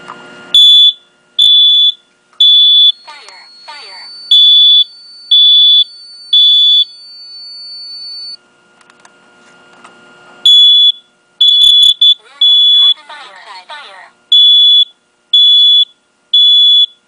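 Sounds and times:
smoke alarm beeping: 0.5 - 8.4, 10.4 - 13.0, 14.3 - 17.0.

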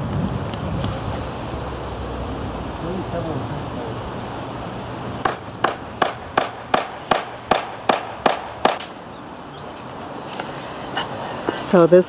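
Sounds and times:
hammer strikes: 5.2 - 9.0.

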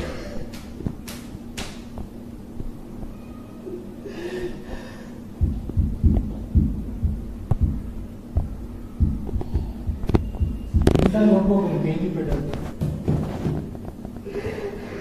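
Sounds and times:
low dull thumps: 5.4 - 11.2.

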